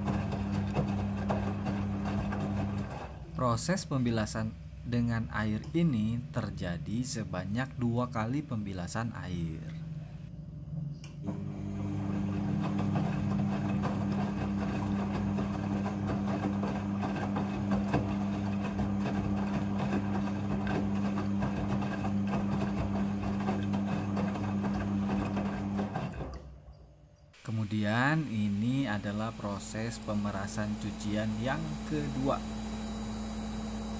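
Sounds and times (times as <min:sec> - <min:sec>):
washing machine motor humming: 0:00.0 - 0:03.2, 0:11.2 - 0:26.4, 0:27.4 - 0:33.9.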